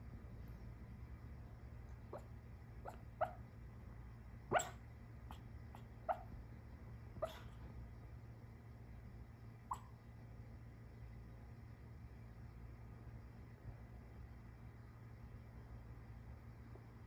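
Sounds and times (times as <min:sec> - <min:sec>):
dog barking softly in sleep: 0:02.0 - 0:03.4, 0:04.5 - 0:06.4, 0:07.2 - 0:07.8, 0:09.6 - 0:10.0.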